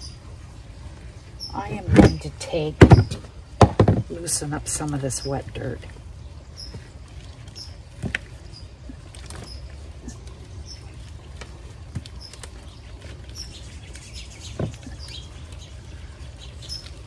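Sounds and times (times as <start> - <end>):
soil crumbling and pattering: 1.6 - 17.0
soft thumps: 1.9 - 4.2.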